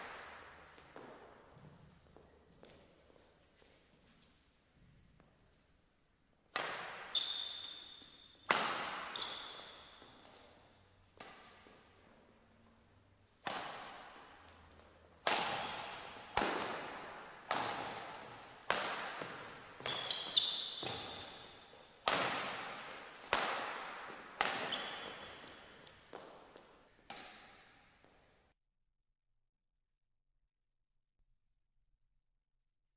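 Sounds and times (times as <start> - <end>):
rackets hitting shuttlecock: 0.0 - 1.9, 6.5 - 12.2, 13.2 - 27.9
shoes squeaking on court: 0.0 - 4.2, 6.9 - 12.9, 13.7 - 28.1.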